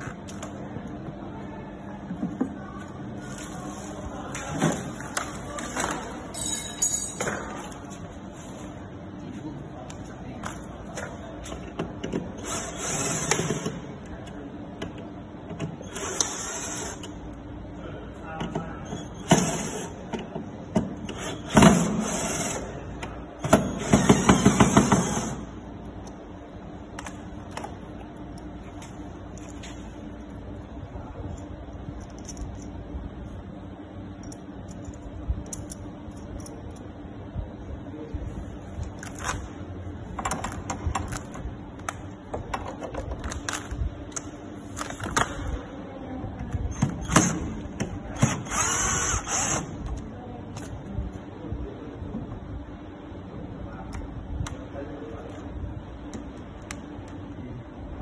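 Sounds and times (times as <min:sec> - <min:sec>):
cordless drill running: 0:48.4 - 0:49.7.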